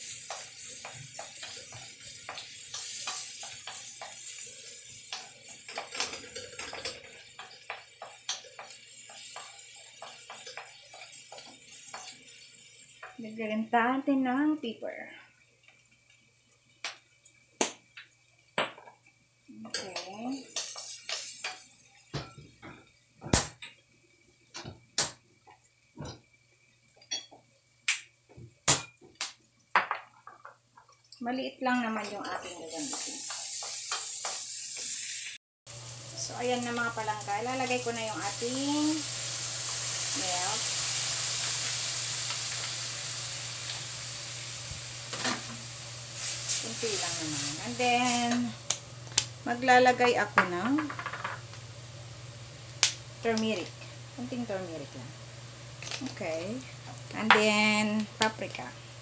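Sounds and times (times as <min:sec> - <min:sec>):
food sizzling in oil: 0:00.0 - 0:59.0
kitchenware knocks and clinks: 0:50.6 - 0:51.4.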